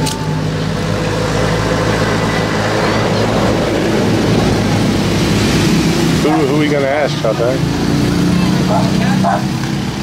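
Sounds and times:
vehicle engine running steadily: 0.0s - 10.0s.

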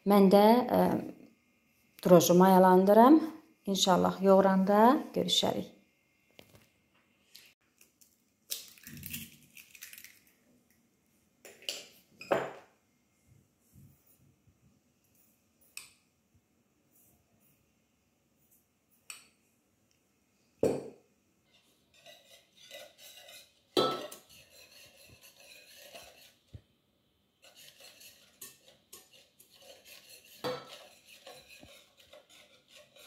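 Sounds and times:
whisk rattling against bowl: 22.0s - 26.4s, 27.4s - 33.0s
whisk knocking against bowl: 27.5s - 33.0s.

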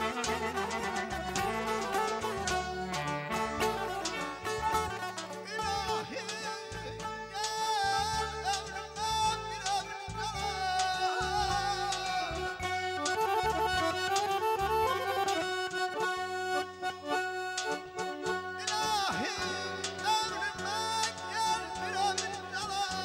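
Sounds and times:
live band music: 0.0s - 23.0s.

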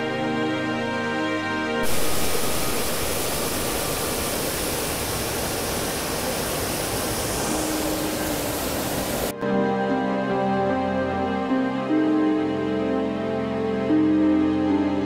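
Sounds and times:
background music: 0.0s - 5.1s, 7.6s - 15.0s
mountain stream rushing: 1.8s - 9.3s.

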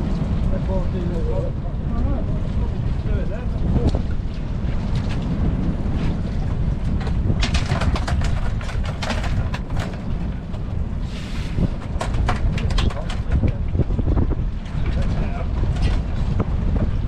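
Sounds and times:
wind rumble on microphone: 0.0s - 17.0s
lobster pots knocking and clattering: 6.8s - 10.7s, 11.7s - 17.0s.

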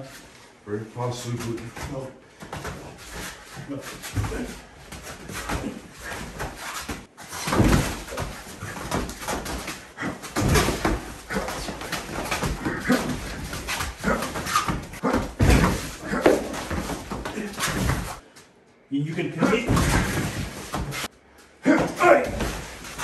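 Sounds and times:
feet shuffling: 0.0s - 18.2s, 19.4s - 23.0s
bodies and padded gear bumping: 1.8s - 18.2s, 19.4s - 23.0s
grunts and hard breathing: 9.8s - 17.6s.

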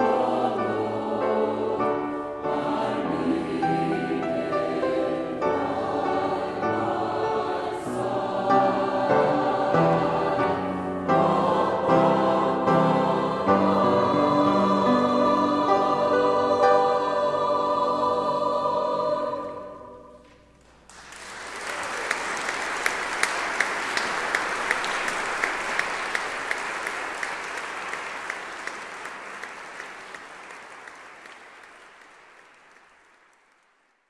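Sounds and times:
choir singing: 0.0s - 20.5s
audience applause: 20.8s - 34.0s.

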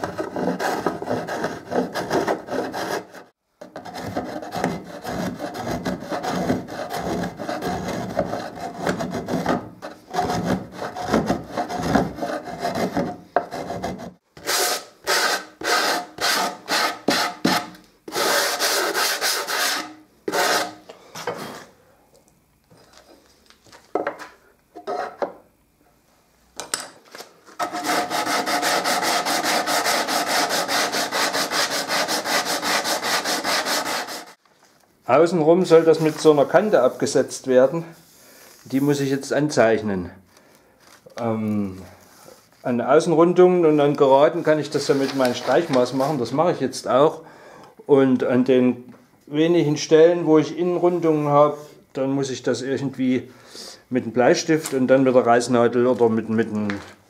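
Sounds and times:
sanding block rubbing wood: 0.0s - 3.3s, 3.9s - 20.8s, 27.6s - 34.4s
spokeshave scraping wood: 0.0s - 21.7s, 27.6s - 34.4s.

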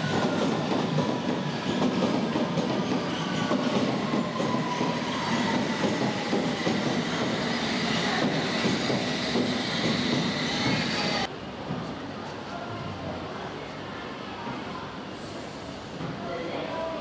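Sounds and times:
train wheels clicking over rail joints: 0.4s - 11.3s.

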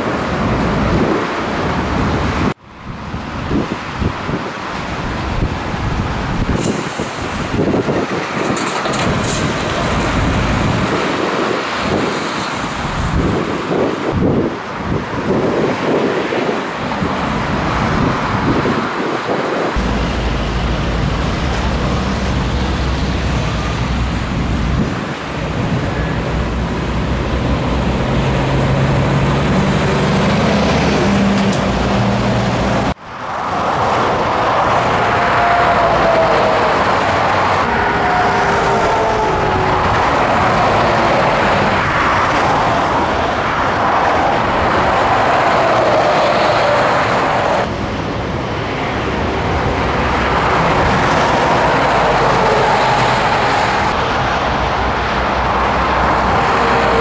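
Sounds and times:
road and tyre noise: 0.0s - 57.0s
truck engine running: 19.8s - 24.9s.

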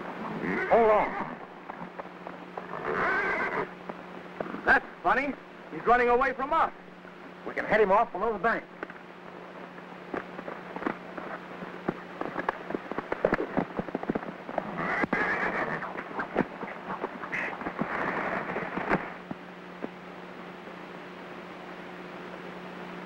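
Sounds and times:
low film soundtrack hum: 0.0s - 23.0s
horse hooves clattering on rocks: 10.1s - 19.4s.

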